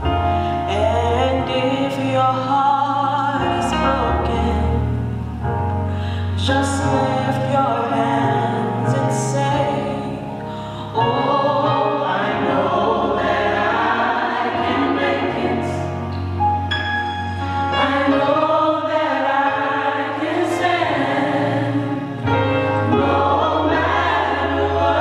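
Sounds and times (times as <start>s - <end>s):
woman singing gospel song: 0.7s - 4.9s, 6.4s - 12.2s
choir voices: 6.4s - 25.0s.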